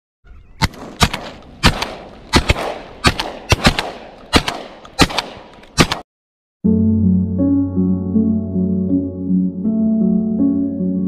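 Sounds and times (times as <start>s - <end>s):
shotgun blasts: 0.6s - 6.0s.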